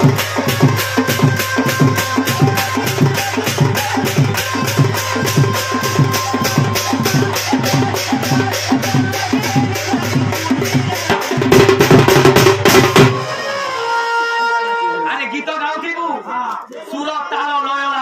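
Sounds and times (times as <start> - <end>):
hand drum beating fast rhythm: 0.0 - 13.3.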